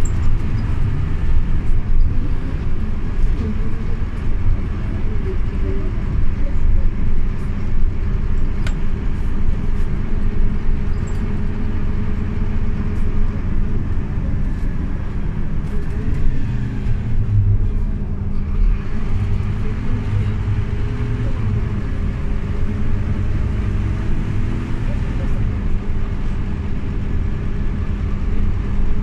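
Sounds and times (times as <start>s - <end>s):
bus engine and road rumble: 0.0s - 29.0s
click: 8.6s - 8.8s.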